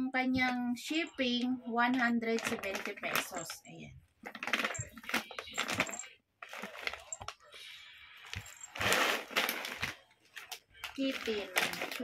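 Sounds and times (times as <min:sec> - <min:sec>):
plastic bag crinkling: 0:02.3 - 0:03.6, 0:04.2 - 0:12.0.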